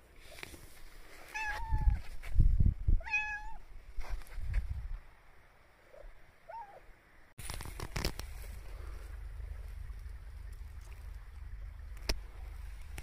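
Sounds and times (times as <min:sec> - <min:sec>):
cat meowing: 0:03.0 - 0:03.6
low rumbling bursts: 0:07.6 - 0:13.0.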